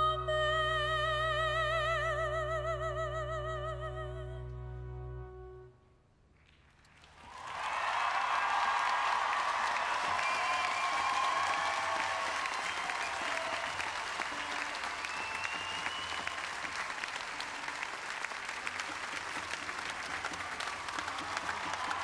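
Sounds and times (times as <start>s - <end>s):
crowd applauding: 6.5s - 22.0s.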